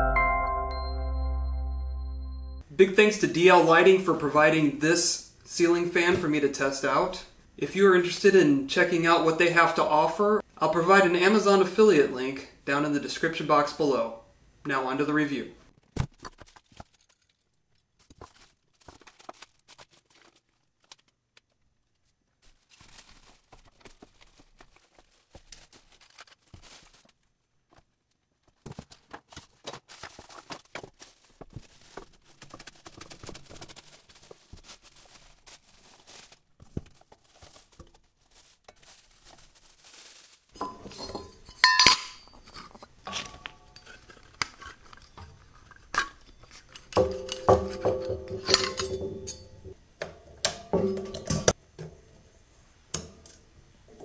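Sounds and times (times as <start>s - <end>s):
brief ringing tone: 0.0s - 2.6s
plastic wrapping rustling: 15.7s - 49.8s
parts clicking and clinking: 40.6s - 52.0s.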